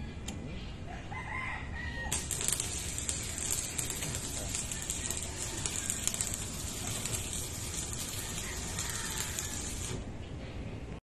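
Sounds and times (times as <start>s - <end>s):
steady high hiss: 2.1s - 10.1s.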